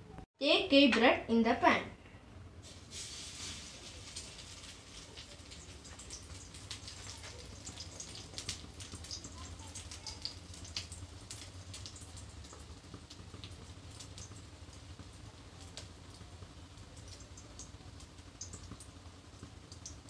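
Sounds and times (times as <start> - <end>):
oil crackling and popping: 2.6 - 20.0.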